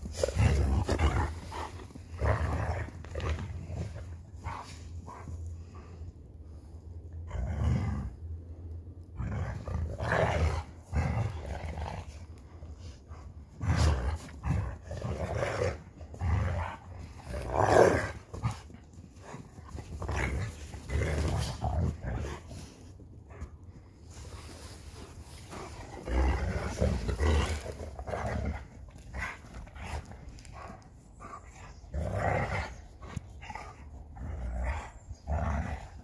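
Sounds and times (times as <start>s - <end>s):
dog growling and snarling: 0.0s - 5.4s, 9.1s - 36.0s.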